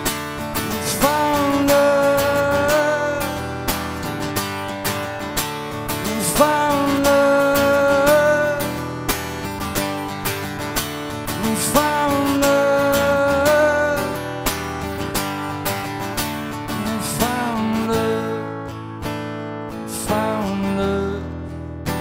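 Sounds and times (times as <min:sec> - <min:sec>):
acoustic guitar strumming: 0:00.0 - 0:22.0
man singing: 0:00.4 - 0:04.3, 0:05.7 - 0:09.2, 0:11.1 - 0:14.8, 0:16.6 - 0:18.7, 0:19.7 - 0:22.0.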